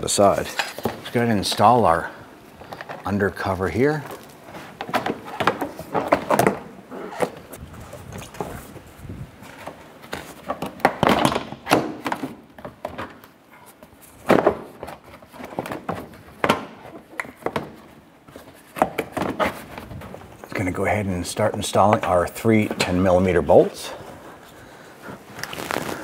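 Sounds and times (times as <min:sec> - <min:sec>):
plastic shield knocking and scraping: 0:04.7 - 0:08.8.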